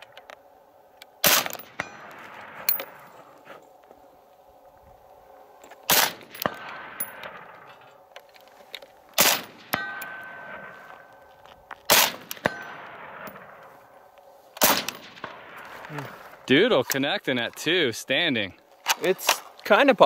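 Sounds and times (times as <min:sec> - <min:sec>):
suppressed rifle shots: 0:01.2 - 0:03.0, 0:05.9 - 0:07.7, 0:09.2 - 0:11.1, 0:11.9 - 0:13.7, 0:14.6 - 0:15.9
steel target ringing: 0:01.5 - 0:03.1, 0:09.3 - 0:11.4, 0:12.1 - 0:14.0.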